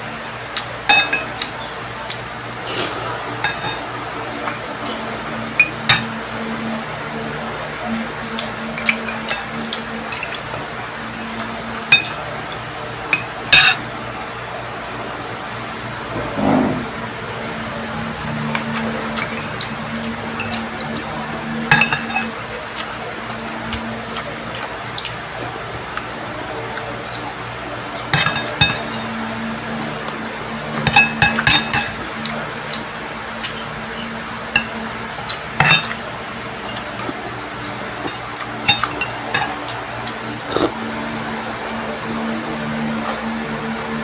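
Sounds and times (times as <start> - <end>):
low steady hum: 0.0 - 44.0
spoon clinking against dish: 0.9 - 1.3, 3.4 - 3.8, 5.6 - 6.1, 11.8 - 12.2, 13.1 - 13.8, 20.4 - 20.6, 21.7 - 22.3, 28.1 - 29.1, 30.8 - 32.0, 34.6 - 34.8, 35.6 - 36.0, 38.0 - 39.6.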